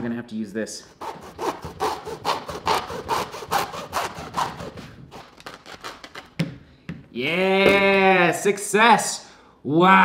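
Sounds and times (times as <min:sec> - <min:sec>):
hacksaw cutting through shoe: 0:01.0 - 0:06.2.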